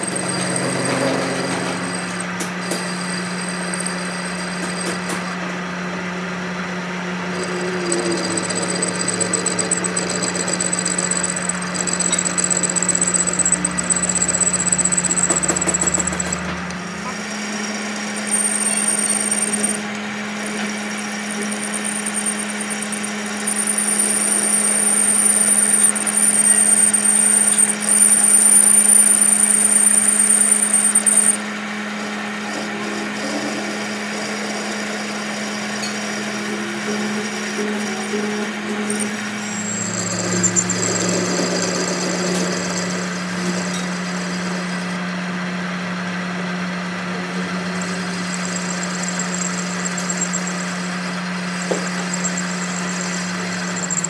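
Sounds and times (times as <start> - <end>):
lathe cutting tool shaving metal: 0.0 - 5.4, 6.8 - 45.1, 46.9 - 54.0
lathe motor hum: 0.0 - 5.4, 6.5 - 54.0
high thin whine: 7.2 - 31.4, 47.2 - 54.0.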